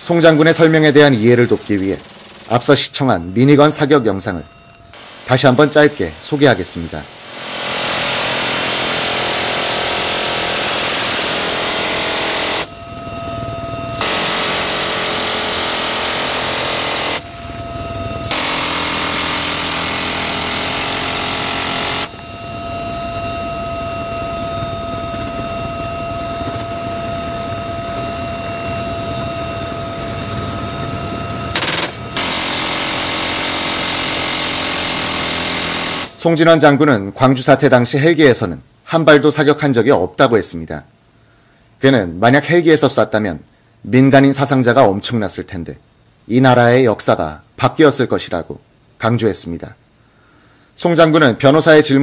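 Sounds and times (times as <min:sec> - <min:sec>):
minigun firing buzz: 0:00.0 - 0:04.0, 0:04.8 - 0:36.2
helicopter cabin whine: 0:00.0 - 0:36.7.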